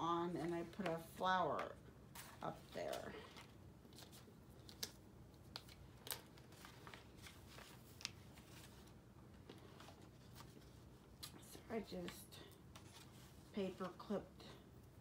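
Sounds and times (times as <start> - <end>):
paper pages rustling: 0.5 - 11.4.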